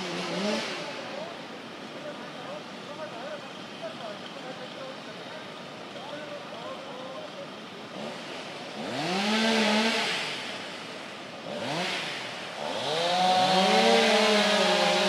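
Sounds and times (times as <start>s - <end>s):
chainsaw revving: 0.0s - 1.2s, 7.8s - 15.0s.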